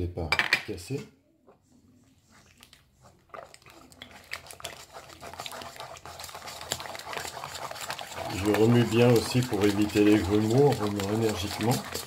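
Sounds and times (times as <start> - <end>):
whisk beating batter in metal bowl: 2.4 - 12.0.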